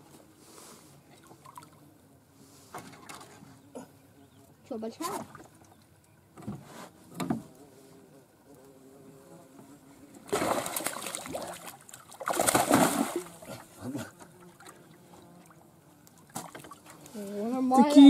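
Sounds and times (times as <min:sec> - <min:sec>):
flying insect buzz: 0:06.9 - 0:18.0
water splashing: 0:10.2 - 0:17.0.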